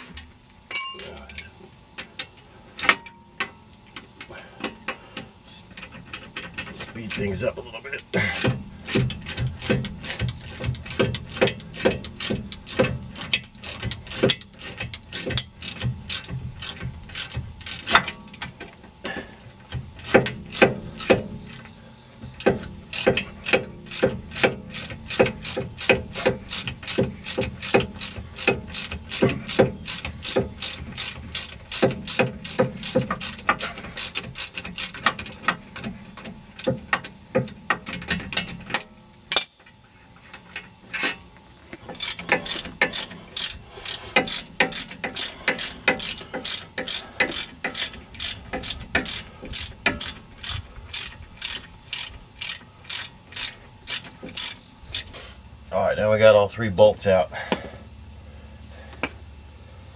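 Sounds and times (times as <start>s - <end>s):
socket ratchet clicking: 8.4s - 18.9s, 19.7s - 39.6s, 41.9s - 55.1s.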